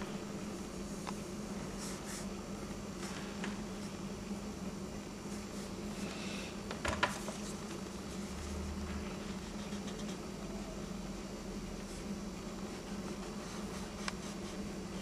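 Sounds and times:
low electrical hum: 0.0 - 15.0
pencil scratching on paper: 9.2 - 10.3, 11.8 - 15.0.

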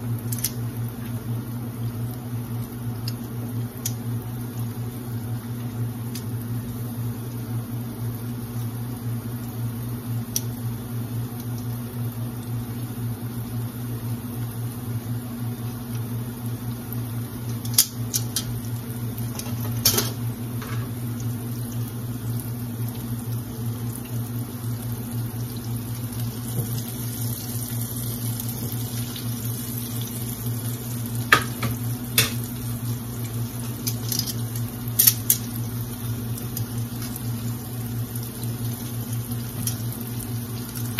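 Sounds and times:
hot oil sizzling: 0.0 - 40.9
metal tongs clicking on pan: 33.8 - 34.4.

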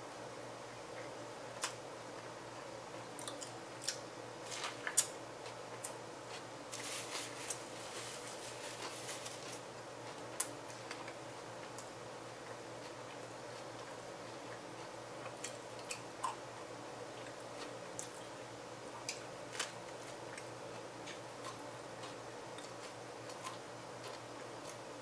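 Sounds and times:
person eating with mouth clicks: 3.2 - 4.0, 13.7 - 16.4
paper napkin rustling: 6.7 - 9.7.

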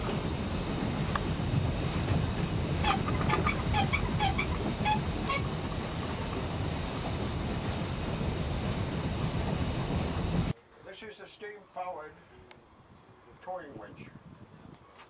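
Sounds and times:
steam winch running: 0.0 - 10.5
steam hissing: 0.0 - 10.6
short high squeaks: 2.8 - 5.8.

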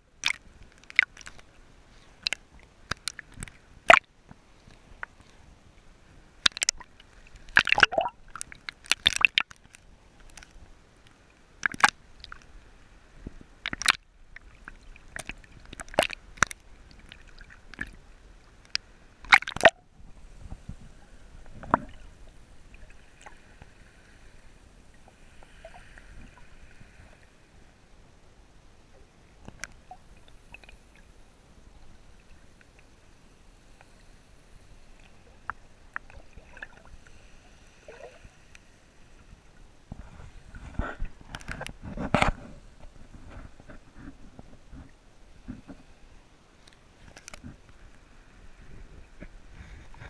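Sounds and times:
waves slapping against camera: 0.2 - 23.8.

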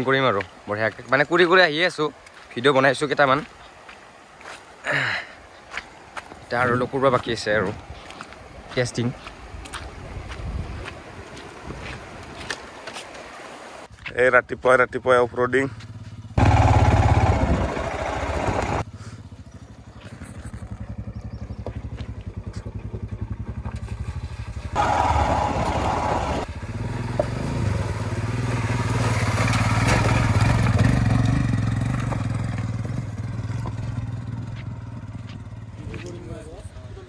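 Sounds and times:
motorcycle engine revving: 15.8 - 36.2.

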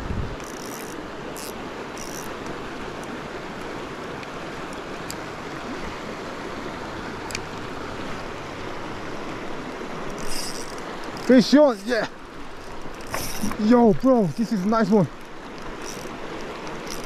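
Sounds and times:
river flowing: 0.0 - 17.0
faint high hisses and ticks: 10.1 - 17.0.

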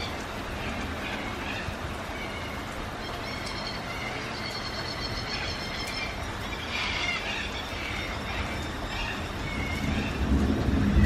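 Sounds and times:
birds giving harsh calls: 0.0 - 10.3
steady rain hiss: 0.0 - 11.0
low rumble of thunder: 8.3 - 11.0.

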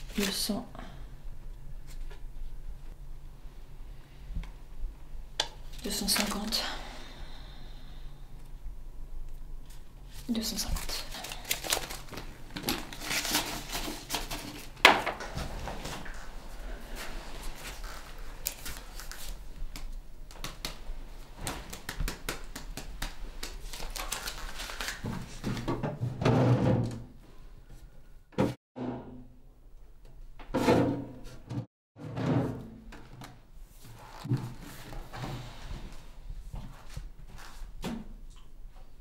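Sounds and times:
banknotes rustling: 10.2 - 14.8, 17.6 - 20.6, 22.6 - 25.4.

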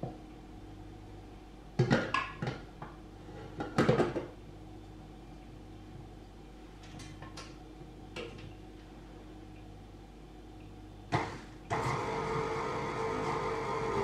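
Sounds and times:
mixer motor humming and whining: 11.2 - 14.0.

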